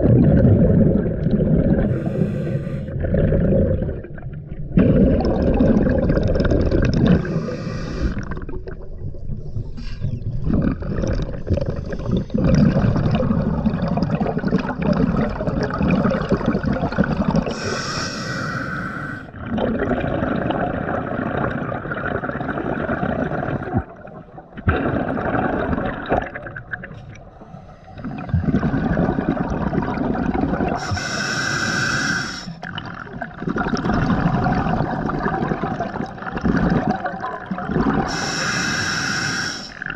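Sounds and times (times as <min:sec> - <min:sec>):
hissing regulator inhalations: 0:01.9 - 0:02.9, 0:07.2 - 0:08.2, 0:17.5 - 0:19.3, 0:30.8 - 0:32.6, 0:38.1 - 0:39.8
gurgling rush of exhaust bubbles: 0:02.9 - 0:07.6, 0:10.4 - 0:17.5, 0:19.4 - 0:26.9.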